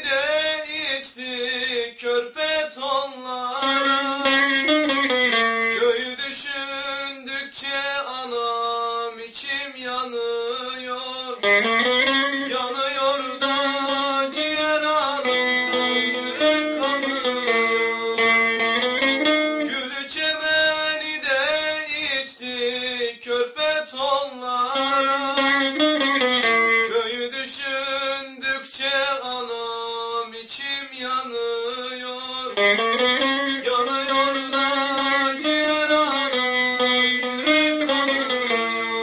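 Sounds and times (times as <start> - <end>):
man singing: 0.0 - 39.0
long-necked lute strummed and plucked: 3.6 - 6.2, 11.4 - 20.1, 24.8 - 27.3, 32.5 - 39.0.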